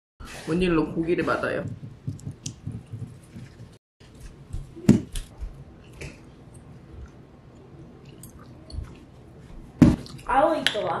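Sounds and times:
chewing: 5.8s - 10.3s.

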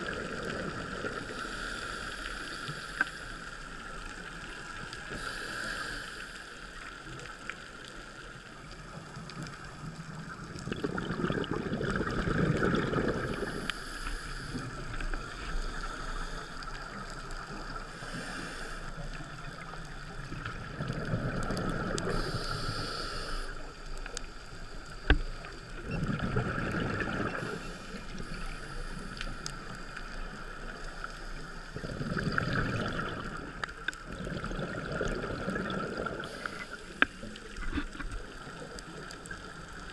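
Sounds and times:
steady hiss: 0.6s - 10.4s, 13.2s - 20.5s, 21.4s - 25.9s, 27.1s - 31.8s, 36.0s - 39.9s
underwater regulator bubbles: 9.6s - 16.2s, 17.1s - 22.9s, 25.0s - 28.4s, 31.6s - 39.3s.

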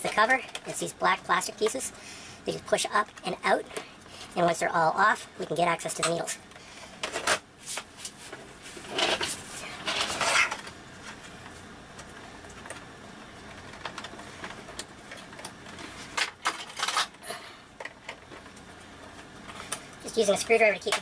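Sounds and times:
plastic rubbing and scraping: 7.7s - 12.2s.

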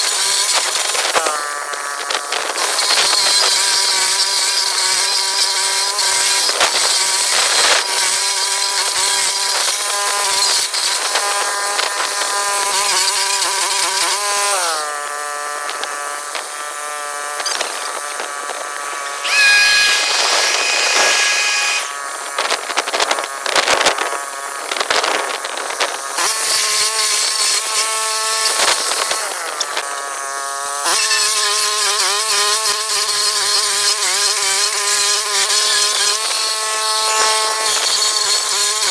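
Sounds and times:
cutter wheel grinding stump: 0.0s - 38.9s
stump grinder engine running: 0.0s - 38.9s
high whine: 19.0s - 22.6s.

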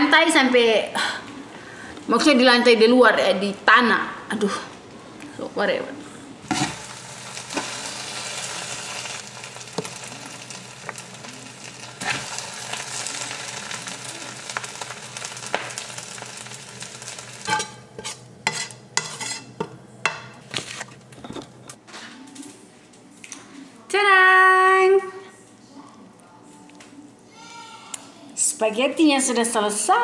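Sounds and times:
pot sizzling: 6.4s - 19.7s
wet stirring and scraping: 17.5s - 19.6s.

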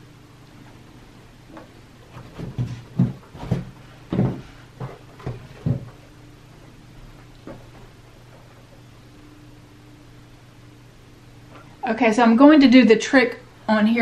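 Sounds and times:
shoes thumping on paper: 1.5s - 6.0s.

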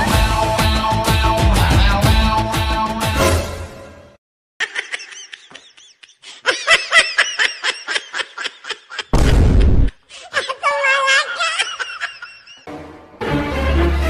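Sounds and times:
music: 0.0s - 4.2s, 12.7s - 14.0s
high-pitched laughter: 4.6s - 9.1s, 10.3s - 12.7s.

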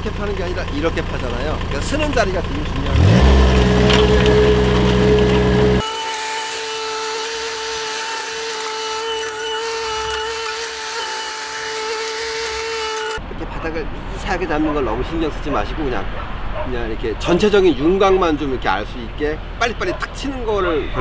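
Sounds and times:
excavator engine drone: 0.0s - 6.0s.

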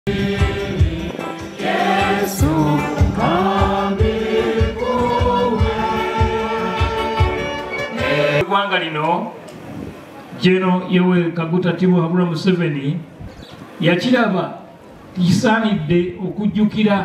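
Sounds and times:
steady low beat: 0.1s - 7.6s
women's choir singing a hymn: 0.1s - 8.4s.

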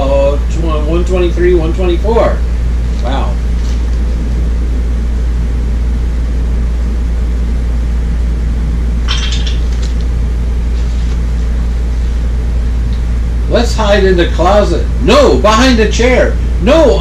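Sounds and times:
deep steady hum: 0.0s - 17.0s
paper book rustling: 3.6s - 3.9s, 10.7s - 11.5s.

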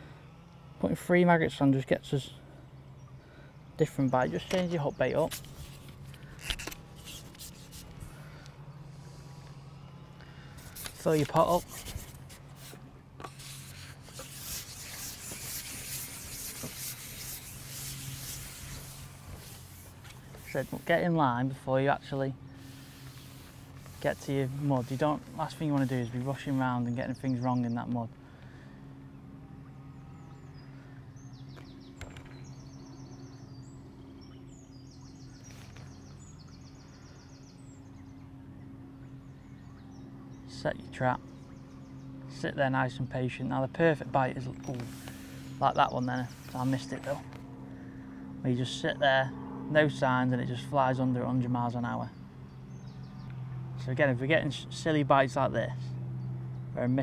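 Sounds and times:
steady low hum: 0.0s - 57.0s
fishing pole rubbing hiss: 5.3s - 8.2s, 10.6s - 21.0s, 22.5s - 26.7s, 44.8s - 45.6s, 46.2s - 47.1s.

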